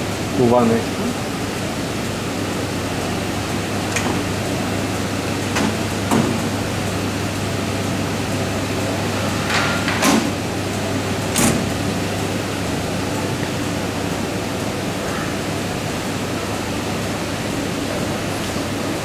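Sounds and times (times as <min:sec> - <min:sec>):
steady hiss and low hum: 0:00.0 - 0:19.0
machine door clunks and knocks: 0:03.9 - 0:04.4, 0:05.4 - 0:06.7, 0:09.4 - 0:10.4, 0:11.2 - 0:11.9.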